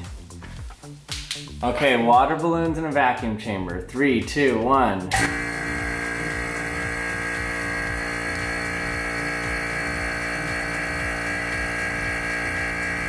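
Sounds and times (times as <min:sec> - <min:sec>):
vacuum pump humming: 0:05.1 - 0:13.0.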